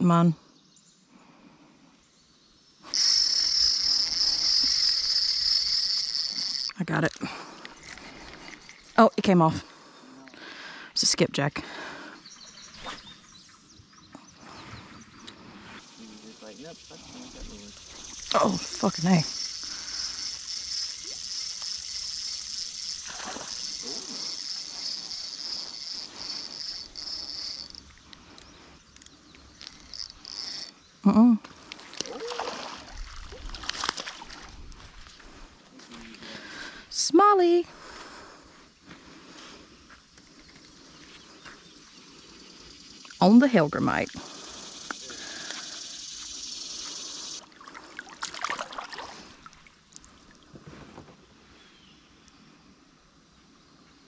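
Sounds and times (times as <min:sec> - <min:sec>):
insects trilling: 0:00.4 - 0:50.6
steady hiss: 0:15.4 - 0:27.9, 0:44.2 - 0:47.4
faint ticks: 0:17.7 - 0:30.8, 0:44.1 - 0:47.4
water splashing and sloshing: 0:20.9 - 0:25.6, 0:31.6 - 0:36.2, 0:47.4 - 0:51.0.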